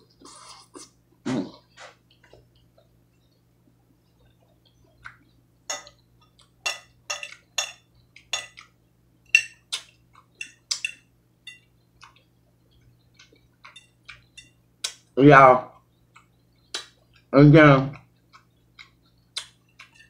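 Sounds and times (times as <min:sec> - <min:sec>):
fork clinking on ceramic plate: 0:05.7 - 0:06.0, 0:06.6 - 0:08.7, 0:09.3 - 0:09.6.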